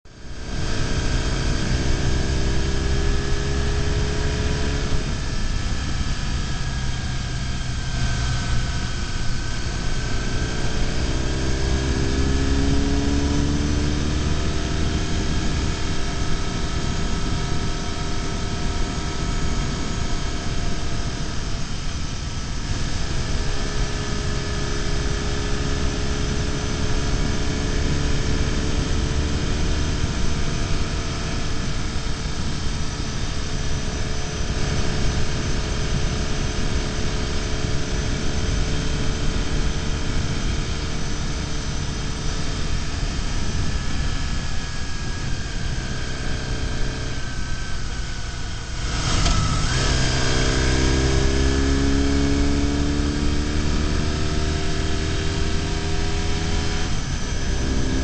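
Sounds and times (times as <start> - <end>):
motorcycle engine running: 0.1 - 58.0.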